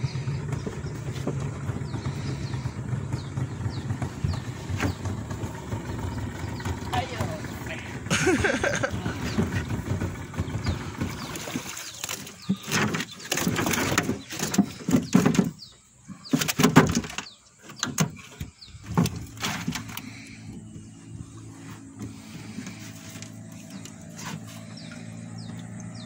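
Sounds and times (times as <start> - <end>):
water splashing: 4.7 - 14.8.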